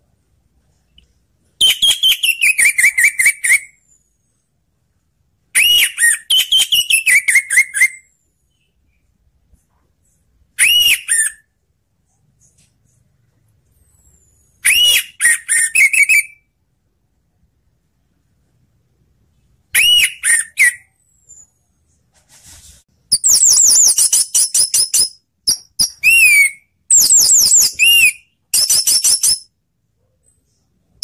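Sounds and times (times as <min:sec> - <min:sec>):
thrush whistling song: 0:00.9 - 0:04.4, 0:05.6 - 0:09.1, 0:10.6 - 0:11.5, 0:13.9 - 0:16.6, 0:19.7 - 0:21.8, 0:23.0 - 0:29.5.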